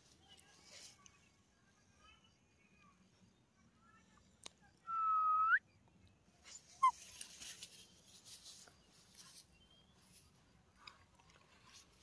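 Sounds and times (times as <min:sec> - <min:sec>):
rustling close to microphone: 0:06.4 - 0:12.0.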